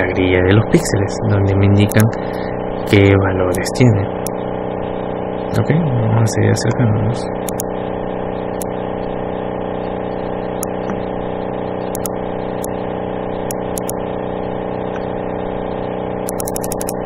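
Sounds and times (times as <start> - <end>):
steady background hum with whir: 0.0 - 17.0
mouse clicks: 11.9 - 12.1, 13.5 - 14.0, 16.3 - 17.0.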